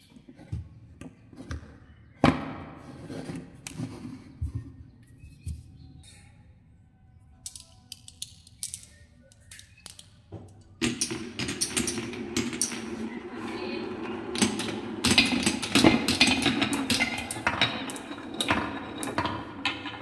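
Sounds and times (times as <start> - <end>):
glass marbles clicking together: 7.4 - 11.9
marbles rolling on wooden run: 10.8 - 20.0.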